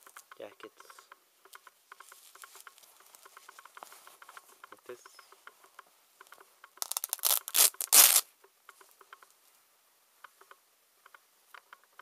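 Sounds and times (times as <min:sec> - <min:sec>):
velcro ripping apart: 0:06.8 - 0:08.3.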